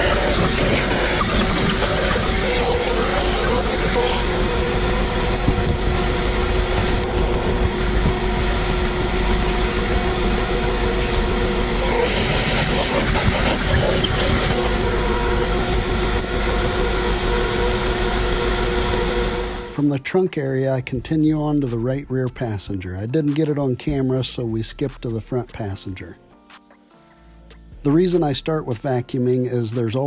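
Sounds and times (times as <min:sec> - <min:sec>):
vacuum cleaner running: 0:00.0 - 0:19.7.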